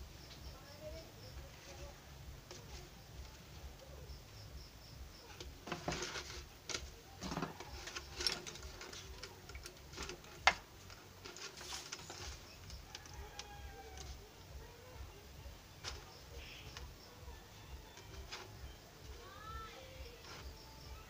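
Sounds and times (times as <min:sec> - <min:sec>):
plastic bottle pieces crackling: 0:05.3 - 0:14.2.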